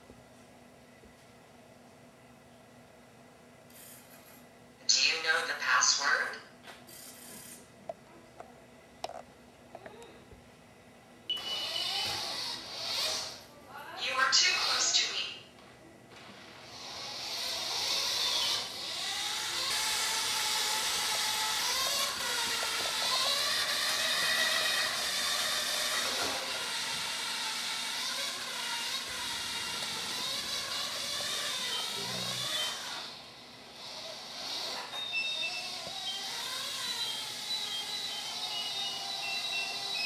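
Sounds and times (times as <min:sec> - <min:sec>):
robot drive motors whining: 0:11.3 - 0:13.4, 0:16.6 - 0:40.0.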